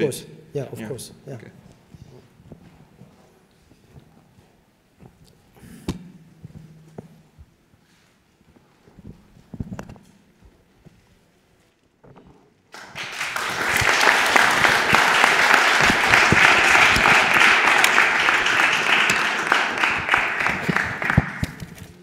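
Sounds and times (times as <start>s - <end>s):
audience applauding: 12.7s - 22.0s.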